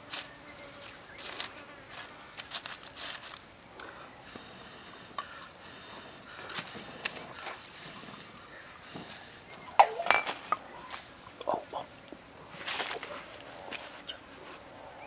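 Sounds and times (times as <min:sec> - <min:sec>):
dry leaves rustling: 0:00.0 - 0:03.7, 0:06.0 - 0:11.2, 0:12.3 - 0:14.7
firewood sticks knocking together: 0:09.8 - 0:11.6.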